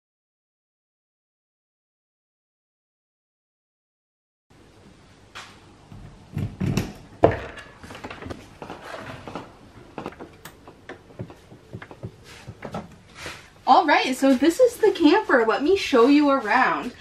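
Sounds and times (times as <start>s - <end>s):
footsteps on steps: 7.8s - 17.0s.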